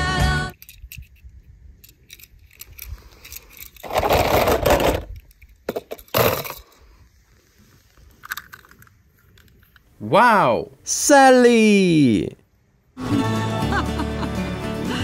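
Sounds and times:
toy cars clicking on brick: 0.5 - 6.7
toy car scraping on brick: 3.4 - 5.2.

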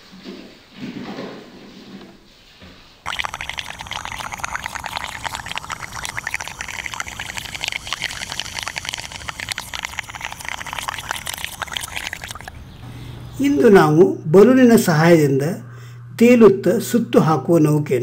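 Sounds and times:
water lapping in a tub: 3.1 - 12.8
air sputtering and bubbling in water: 3.1 - 13.5.

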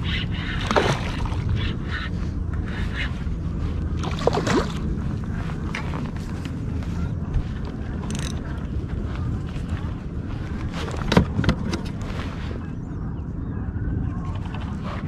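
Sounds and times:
wind buffeting microphone: 0.0 - 15.0
fish splashing in water: 0.4 - 1.7, 3.9 - 5.0.

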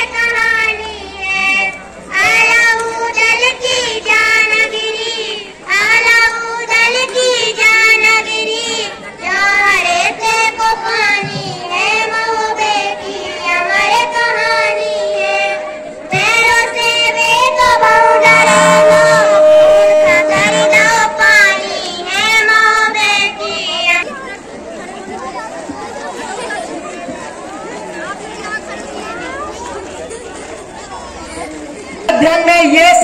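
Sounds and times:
held instrumental note: 10.8 - 23.8.

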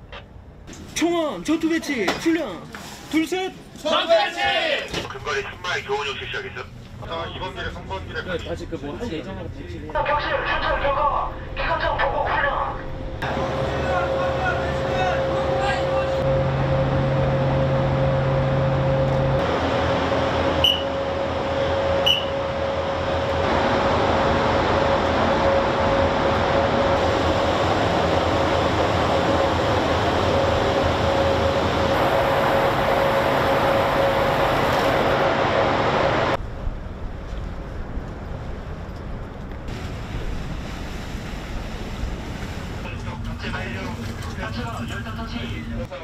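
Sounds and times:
ship machinery whine and hum: 5.1 - 46.0
wind and sea noise: 19.4 - 46.0.

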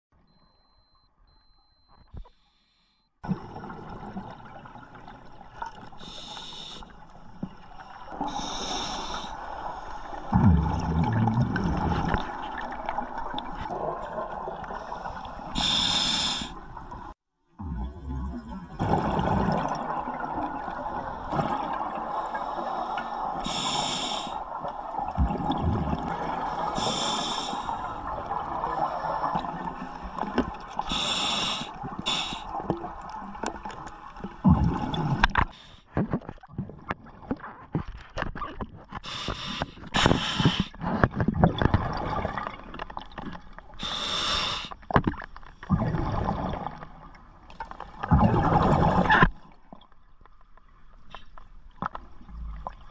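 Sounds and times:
exhaled bubbles underwater: 3.2 - 35.4, 40.4 - 44.1, 44.8 - 50.0
regulator hissing inhalations: 6.0 - 6.9, 15.6 - 16.6, 22.4 - 24.5, 26.7 - 27.8, 30.8 - 32.5, 39.1 - 40.8, 43.8 - 44.8.

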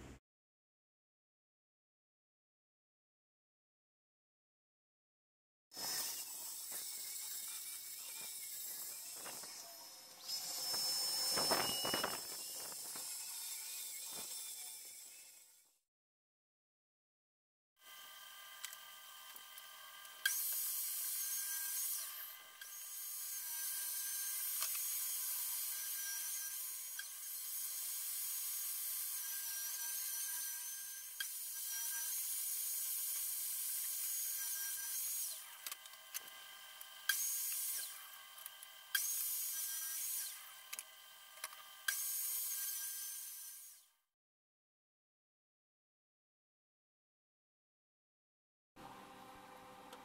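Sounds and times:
table saw cutting plywood: 5.7 - 15.8, 17.8 - 43.9.

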